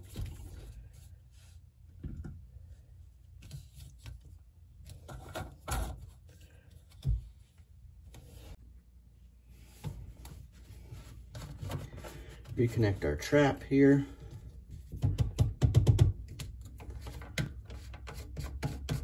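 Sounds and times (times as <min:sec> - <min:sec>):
plastic pipe rubbing and scraping: 0:09.6 - 0:15.5, 0:16.5 - 0:19.0.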